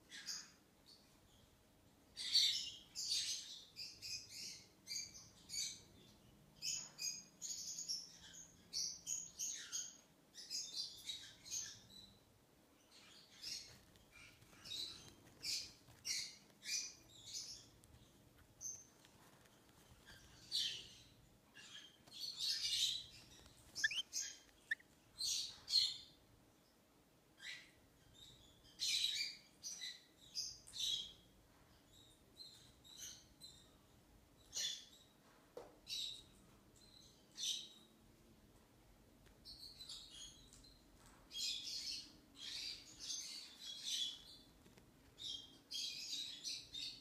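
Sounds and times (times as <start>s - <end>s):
lovebird chick chirping: 13.3s - 26.0s.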